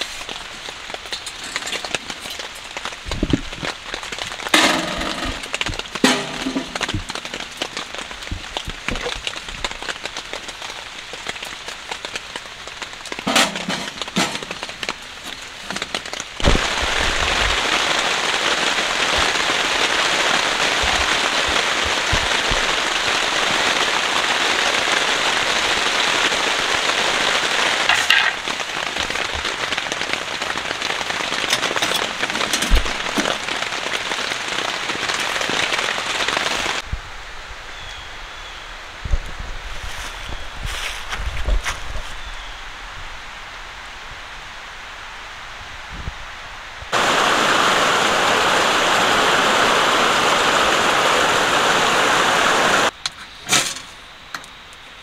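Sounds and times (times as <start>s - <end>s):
wood fire crackling and popping: 0.0s - 36.9s
rain on tent fabric: 0.0s - 55.0s.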